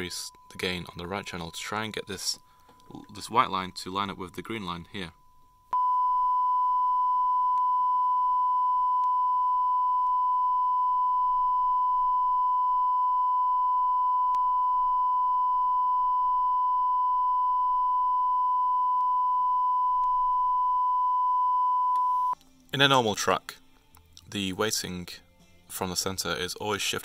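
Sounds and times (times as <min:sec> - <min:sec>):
sine test tone: 0:00.0 - 0:22.4.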